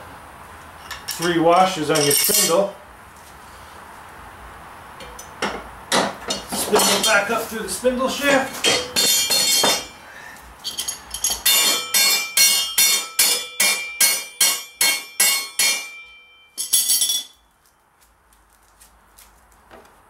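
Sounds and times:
hammer ringing on metal bolt: 8.6 - 10.0, 10.7 - 17.4.

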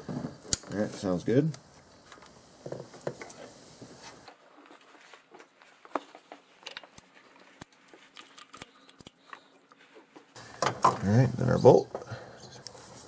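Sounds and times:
hands clicking and tapping parts: 5.9 - 9.8.

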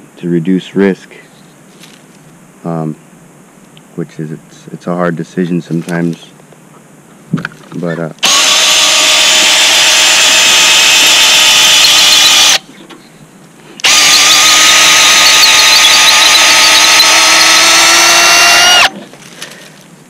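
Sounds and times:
cordless drill boring wood: 8.2 - 12.6, 13.8 - 19.0.

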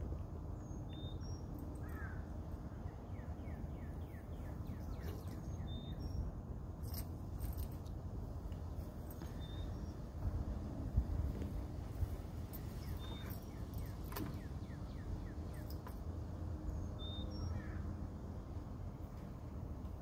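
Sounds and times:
small birds chirping: 0.5 - 6.4, 9.2 - 10.1, 12.0 - 15.9, 16.7 - 18.0.

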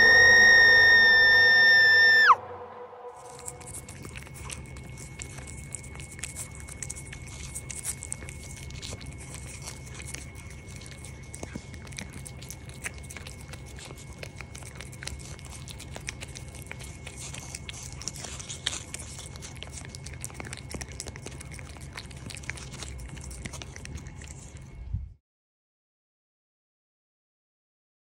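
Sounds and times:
cat licking and smacking: 3.2 - 24.8.

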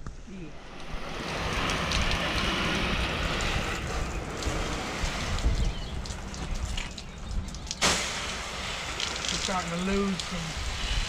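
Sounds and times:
engine rumble: 0.0 - 11.0
pressure washer spray hissing: 7.8 - 11.0.

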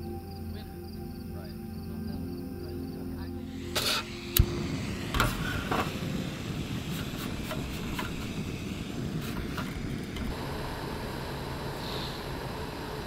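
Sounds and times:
gas burner hissing: 3.4 - 13.0
stove ignition click: 3.6 - 10.4.

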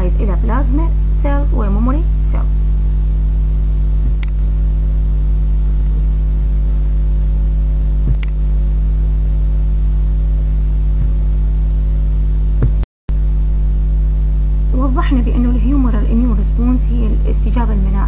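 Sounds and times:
loud electrical hum: 0.0 - 18.0
short click: 8.1 - 8.4.

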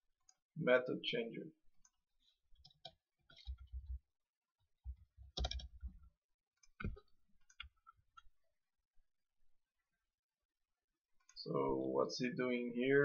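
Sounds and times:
computer keyboard clicks: 5.3 - 5.7.

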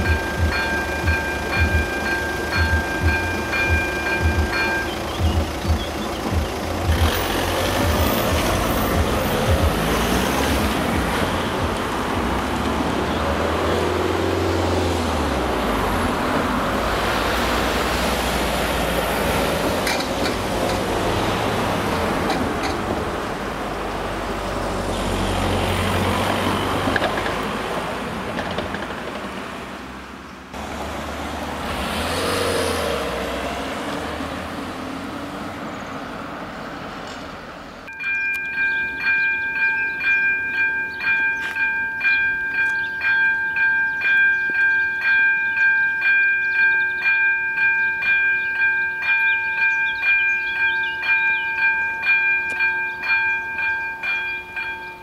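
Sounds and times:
cars driving past: 0.0 - 37.9.

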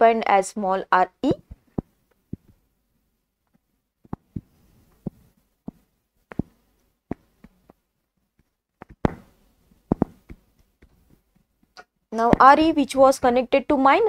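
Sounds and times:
stylus tapping on tablet: 1.3 - 2.6, 3.5 - 7.8, 8.4 - 9.3, 9.9 - 12.8.

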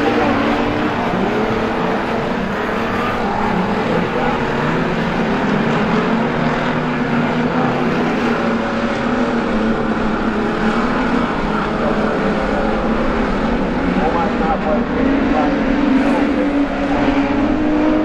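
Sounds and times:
race car engines droning: 0.0 - 18.0.

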